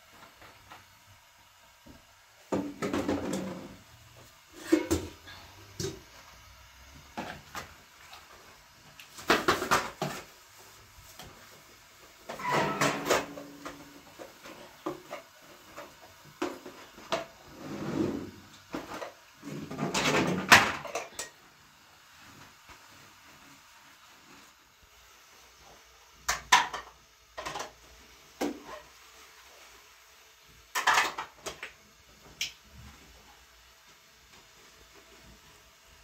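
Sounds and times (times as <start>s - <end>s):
objects knocking and clattering: 2.5s - 3.8s, 4.6s - 6.1s, 9.1s - 10.3s, 12.2s - 17.5s, 18.2s - 21.4s, 26.2s - 28.9s, 30.7s - 31.8s.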